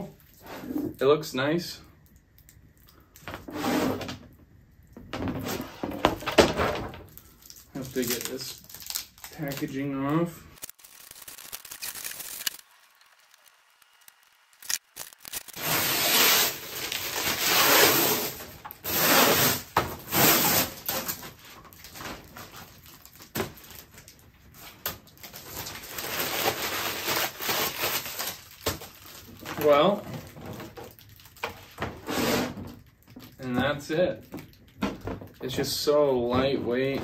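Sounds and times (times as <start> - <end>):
plastic packaging crinkling: 6.0 - 36.0
small clicks: 10.6 - 15.6.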